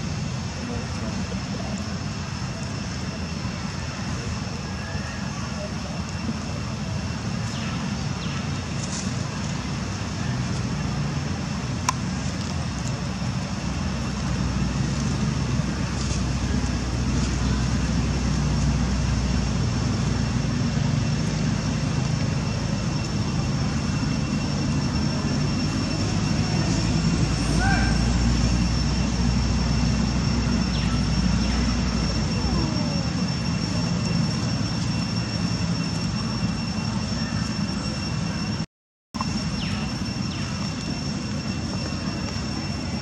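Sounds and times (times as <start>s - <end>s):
low outdoor rumble: 0.0s - 43.0s
faint high tone: 30.3s - 38.4s.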